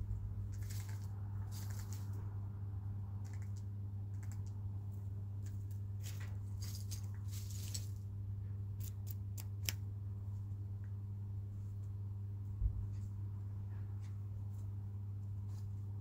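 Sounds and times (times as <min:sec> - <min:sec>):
steady low hum: 0:00.0 - 0:16.0
short rustle: 0:06.0 - 0:08.0.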